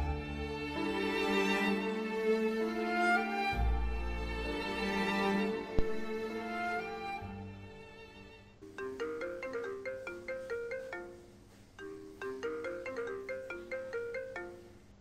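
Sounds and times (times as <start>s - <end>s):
sad string music: 0.0s - 11.3s
marimba ringtone: 8.6s - 15.0s.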